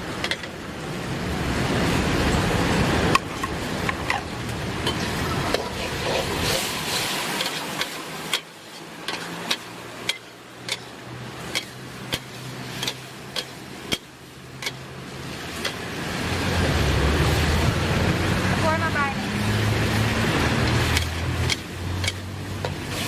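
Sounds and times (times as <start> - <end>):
vehicle engine rumble: 0.0 - 23.0
metal spatula striking a wok: 4.8 - 14.9, 15.5 - 15.9, 20.7 - 23.0.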